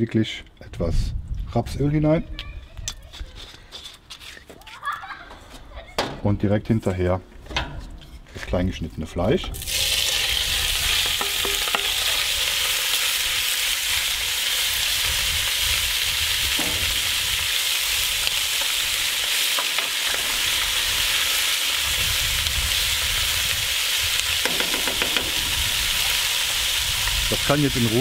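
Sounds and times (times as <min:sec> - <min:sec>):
meat sizzling in oil: 0:09.6 - 0:28.0
wooden spoon knocks: 0:24.4 - 0:25.4.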